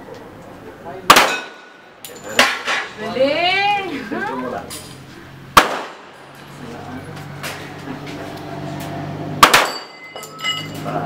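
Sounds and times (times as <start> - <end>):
handgun shots with echo: 1.1 - 1.7, 5.6 - 6.2, 9.4 - 10.0
metallic ringing: 9.4 - 11.0.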